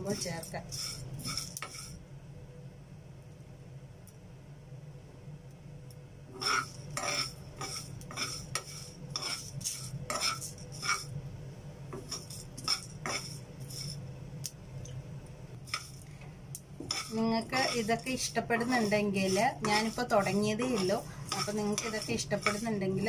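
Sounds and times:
spoon scraping a frying pan: 0.0 - 2.0, 6.4 - 11.1, 12.0 - 14.0, 15.6 - 16.0, 16.8 - 23.0.

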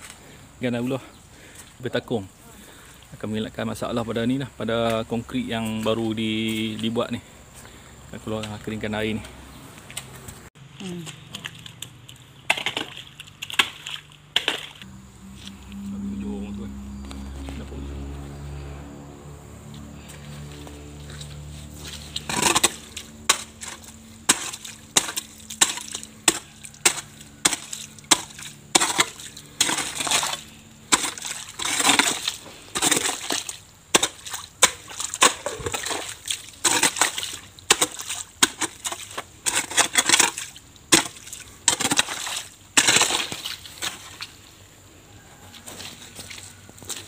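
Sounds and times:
water splashing: 9.8 - 15.8, 20.5 - 44.6
hoe chopping into wet mud: 12.5 - 14.9, 21.8 - 44.3.

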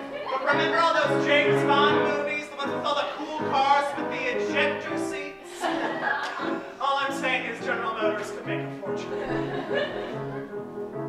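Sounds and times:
piano accompaniment: 0.0 - 11.0
man singing a show tune: 0.3 - 5.4, 6.6 - 9.1.

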